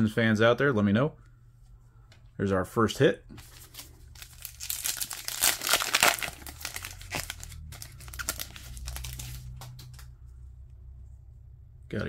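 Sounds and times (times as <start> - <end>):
foil wrapper tearing and crinkling: 3.4 - 9.6.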